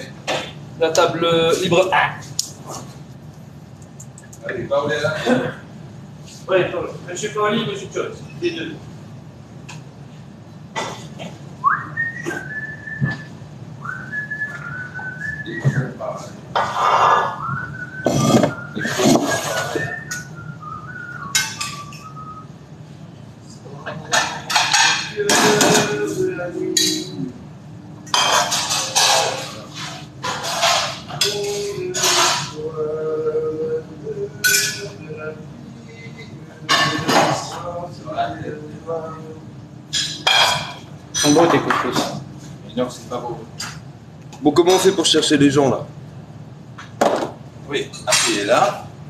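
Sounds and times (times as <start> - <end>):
person whistling: 11.6 - 16.3, 16.9 - 22.5
dishes and utensils clattering: 21.2 - 22.2, 23.8 - 27.2, 28.0 - 32.7, 34.4 - 35.0, 36.6 - 37.7, 39.9 - 42.3, 47.0 - 48.9.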